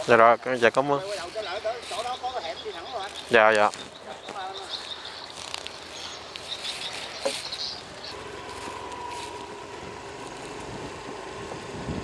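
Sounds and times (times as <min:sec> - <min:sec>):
scooter engine running: 0:04.9 - 0:12.0.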